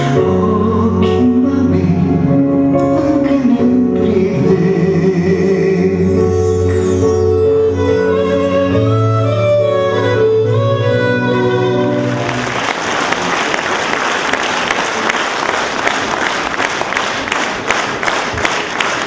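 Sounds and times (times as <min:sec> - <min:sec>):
audience applause: 0:11.9 - 0:19.0.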